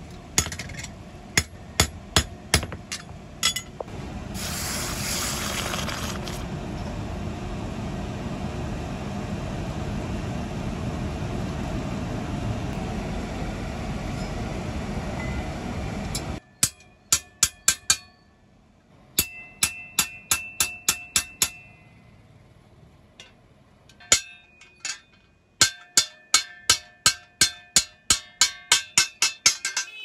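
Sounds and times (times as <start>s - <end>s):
water boiling around hot steel: 4.4s - 6.5s.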